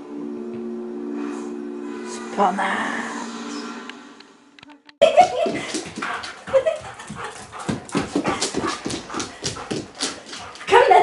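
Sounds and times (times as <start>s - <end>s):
paws scrabbling on wooden floor: 5.0s - 11.0s.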